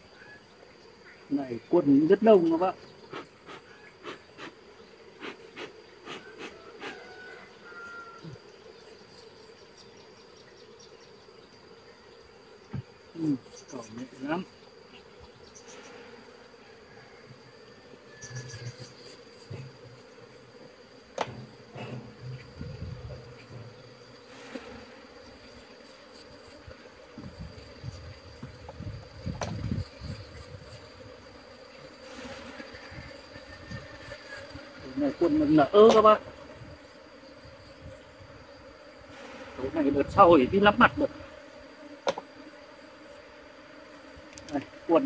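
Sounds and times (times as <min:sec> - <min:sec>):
bees buzzing: 0:00.0 - 0:45.0
clicks and knocks of hive frames: 0:12.6 - 0:13.0, 0:18.2 - 0:20.2, 0:21.0 - 0:24.8, 0:28.3 - 0:29.9, 0:35.6 - 0:36.5, 0:41.1 - 0:42.7, 0:43.7 - 0:44.9.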